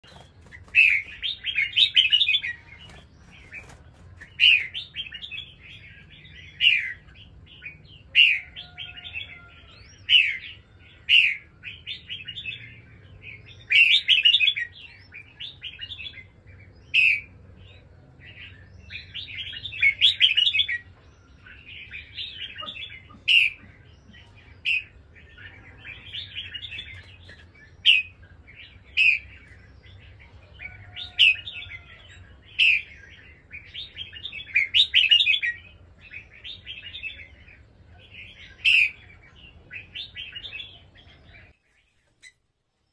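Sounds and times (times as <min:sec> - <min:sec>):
birds singing: 0:00.0 - 0:42.9.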